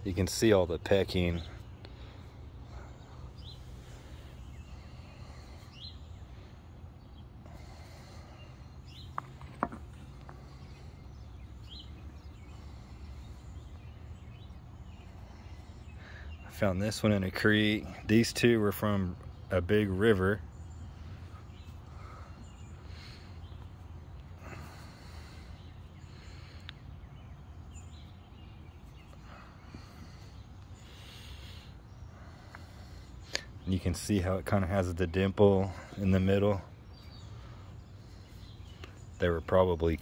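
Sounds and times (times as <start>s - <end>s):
faint bird chirps: 0.0s - 40.0s
person breathing: 1.5s - 9.4s, 10.0s - 16.4s, 20.8s - 27.4s, 28.8s - 33.7s.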